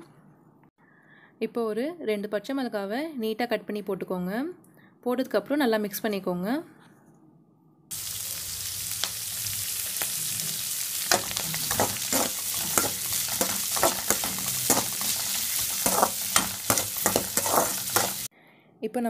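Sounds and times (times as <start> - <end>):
onions sizzling in hot oil: 7.9 - 18.3
metal spoon scraping a pan: 9.6 - 18.3.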